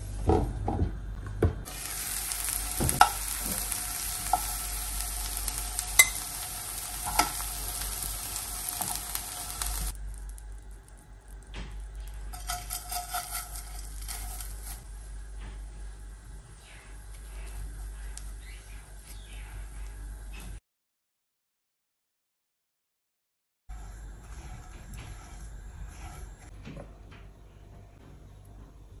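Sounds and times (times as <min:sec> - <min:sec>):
food sizzling in frying pan: 0:01.6 - 0:10.8, 0:12.3 - 0:15.2.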